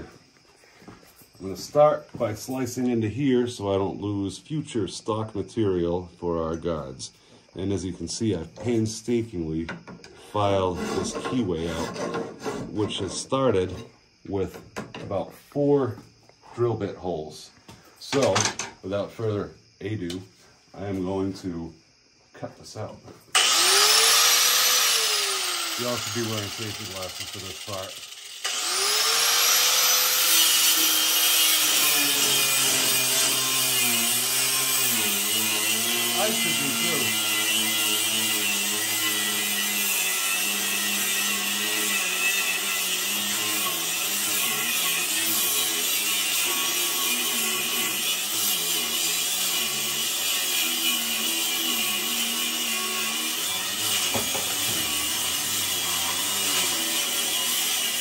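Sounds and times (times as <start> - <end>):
angle grinder cutting metal: 10.4 - 13.0, 23.3 - 58.0.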